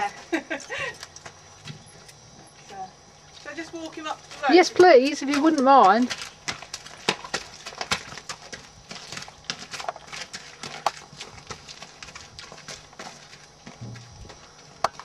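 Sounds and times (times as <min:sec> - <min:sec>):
horse hooves on gravel: 0:00.0 - 0:15.0.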